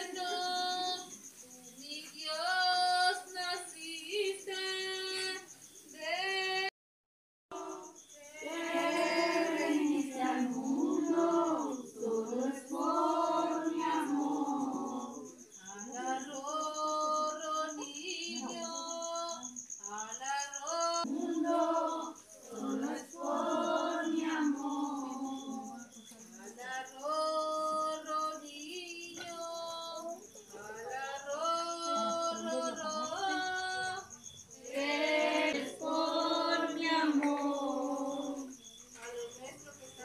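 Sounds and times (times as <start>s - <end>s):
group singing a carol unaccompanied: 0.0s - 1.3s, 1.9s - 6.7s, 7.5s - 38.7s.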